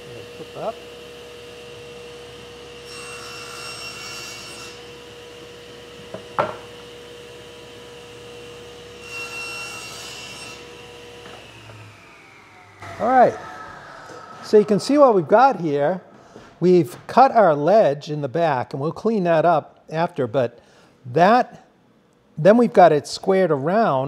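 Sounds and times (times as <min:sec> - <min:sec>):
saw cutting wood: 0:00.7 - 0:06.0, 0:07.7 - 0:17.0
table saw motor hum: 0:00.7 - 0:16.6.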